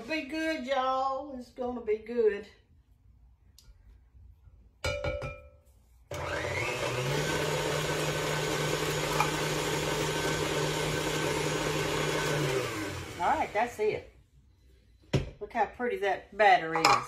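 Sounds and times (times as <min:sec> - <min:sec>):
electric kitchen mixer whirring: 0:06.1 - 0:13.7.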